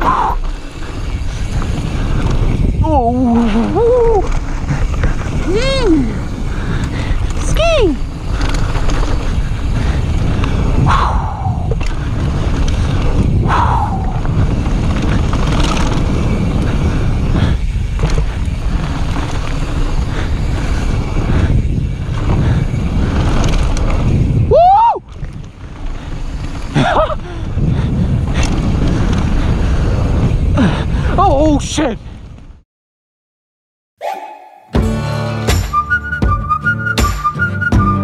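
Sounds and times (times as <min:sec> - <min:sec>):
wind buffeting microphone: 0:00.0 - 0:32.6
bike tyres rattling over stones: 0:00.1 - 0:10.9, 0:11.5 - 0:32.6
cry-like tone: 0:34.0 - 0:34.8.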